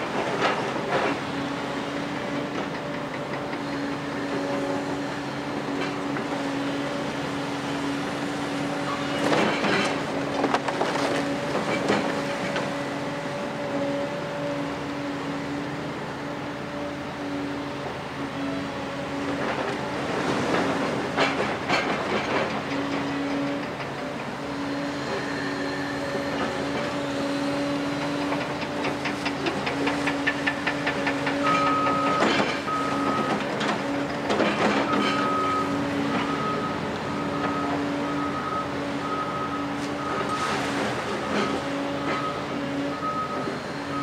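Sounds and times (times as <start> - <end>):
diesel excavator engine running: 0.0 - 44.0
reversing alarm beeping: 31.4 - 33.4, 34.8 - 44.0.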